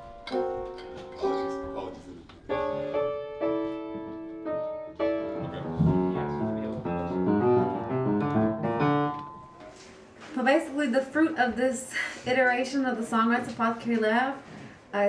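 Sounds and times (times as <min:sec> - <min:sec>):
piano playing: 0:00.0 - 0:10.1.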